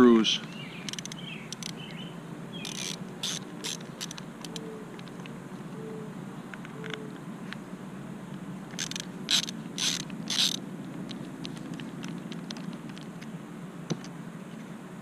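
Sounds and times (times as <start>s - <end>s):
ratchet screwdriver clicking: 0.9s - 1.8s, 2.6s - 4.6s, 8.8s - 12.6s.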